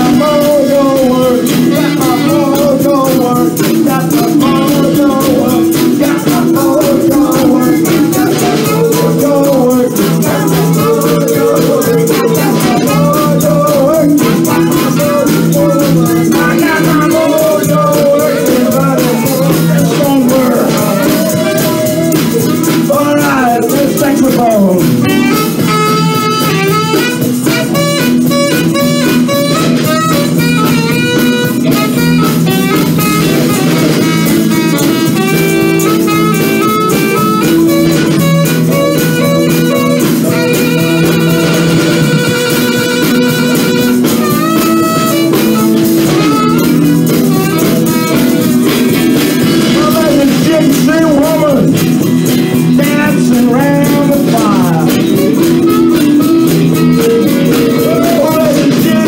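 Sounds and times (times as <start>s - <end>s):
drums: 0.0s - 59.0s
electric guitars: 0.0s - 59.0s
saxophone lead line: 0.0s - 59.0s.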